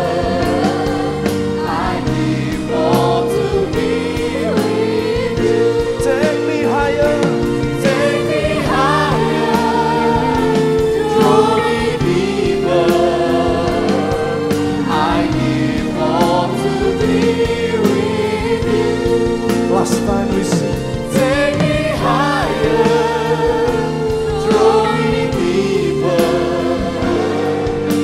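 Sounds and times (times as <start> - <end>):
women singing: 0.0 - 19.7, 20.9 - 28.0
sustained musical backing: 0.0 - 28.0
man singing lead vocals: 6.0 - 8.4.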